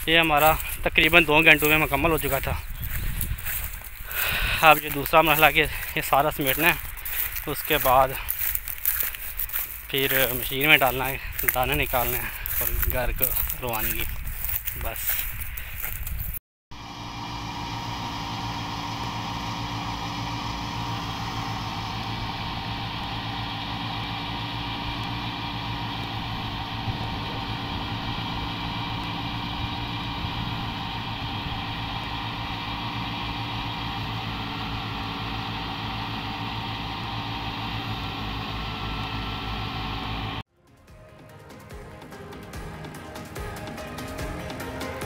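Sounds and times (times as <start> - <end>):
tractor engine running: 0.0 - 40.4.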